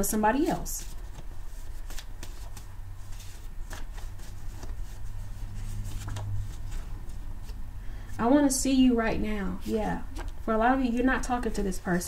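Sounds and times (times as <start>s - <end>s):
cards being shuffled: 0.4s - 7.6s, 10.1s - 10.4s.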